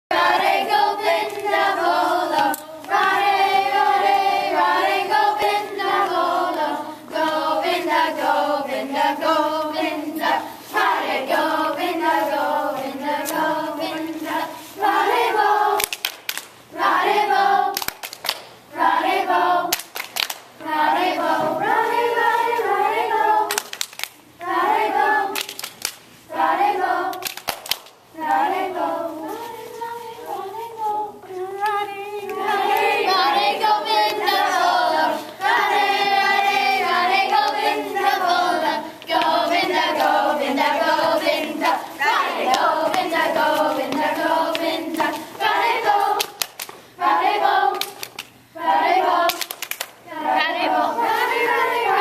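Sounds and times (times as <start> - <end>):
children singing in unison: 0.1 - 15.9, 20.6 - 23.6, 28.2 - 46.4, 50.1 - 52.0.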